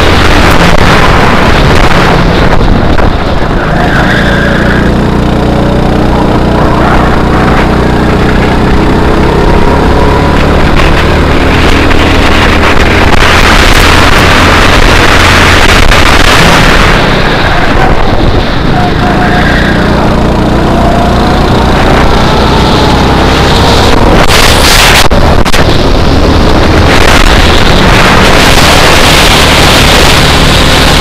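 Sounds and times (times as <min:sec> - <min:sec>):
wind buffeting microphone: 0:00.0 - 0:03.7, 0:19.8 - 0:31.0
go-kart engine revving: 0:00.0 - 0:31.0.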